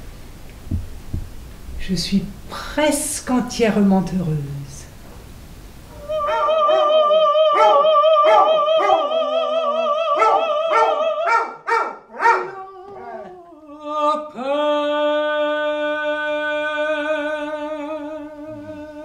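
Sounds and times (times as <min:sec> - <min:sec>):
woman singing held note with vibrato: 0:05.9 - 0:11.4, 0:12.7 - 0:19.0
dog barking and yelping: 0:07.6 - 0:09.1, 0:10.2 - 0:13.3.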